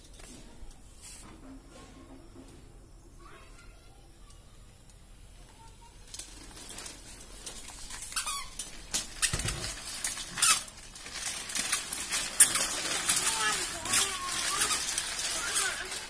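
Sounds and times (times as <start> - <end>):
baby walker rattling on tiles: 5.6 - 16.0.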